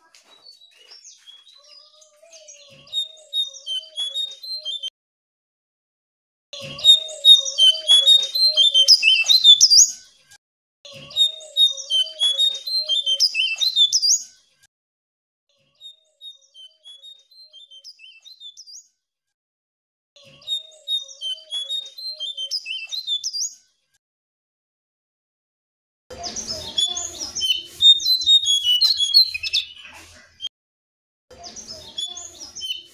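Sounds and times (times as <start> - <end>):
songbird twittering: 0.5 - 4.9, 6.9 - 9.9, 11.2 - 14.2, 26.8 - 30.5.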